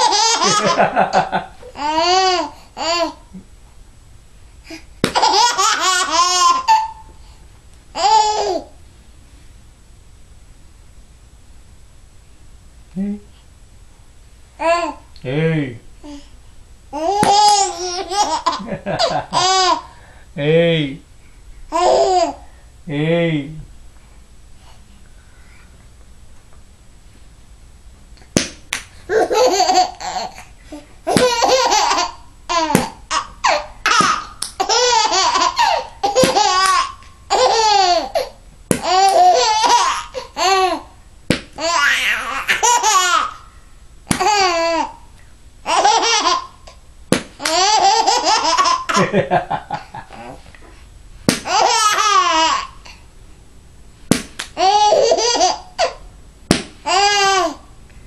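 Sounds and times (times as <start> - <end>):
baby laughing: 0.0 - 3.3, 5.0 - 7.0, 8.0 - 8.7, 17.0 - 19.9, 21.7 - 22.4, 29.1 - 40.9, 41.6 - 43.4, 44.1 - 45.0, 45.6 - 46.8, 47.4 - 50.4, 51.5 - 53.0, 54.6 - 56.0, 56.8 - 57.6.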